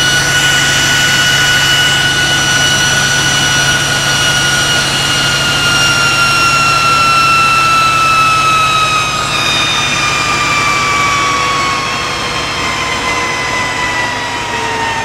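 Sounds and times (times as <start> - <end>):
high whine falling in pitch: 0.0 - 15.0
locomotive engine roaring: 0.0 - 15.0.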